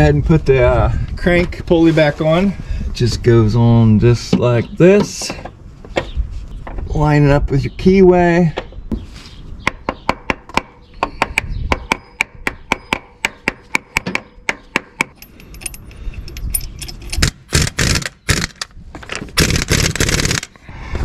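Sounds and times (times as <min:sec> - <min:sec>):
pneumatic impact wrench bursts: 0:17.2 - 0:18.6, 0:19.4 - 0:20.5.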